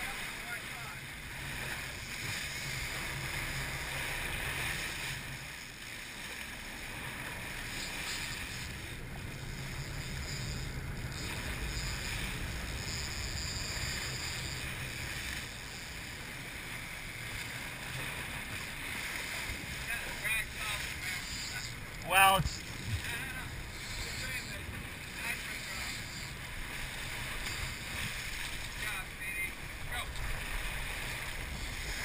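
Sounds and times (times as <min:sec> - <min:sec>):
boat diesel engines humming: 0:00.0 - 0:32.0
whitewater churning: 0:00.0 - 0:32.0
wind on microphone: 0:21.6 - 0:24.9.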